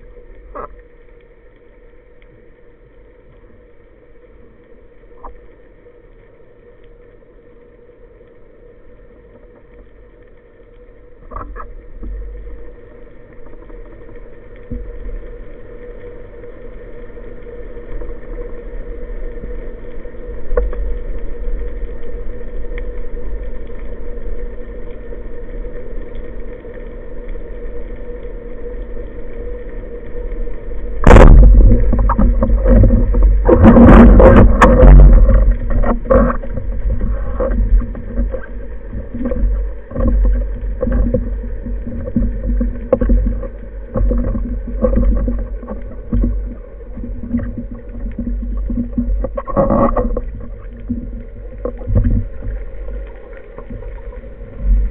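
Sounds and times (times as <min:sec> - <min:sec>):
underwater hum: 0:00.0 - 0:54.9.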